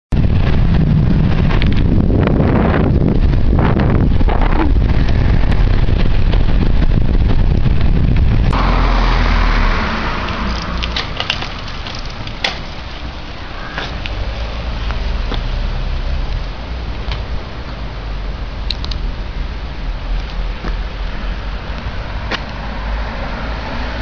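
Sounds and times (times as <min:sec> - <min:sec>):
steady background noise: 0:00.1 - 0:24.0
wind buffeting microphone: 0:00.1 - 0:24.0
sharp clicks: 0:18.6 - 0:19.0.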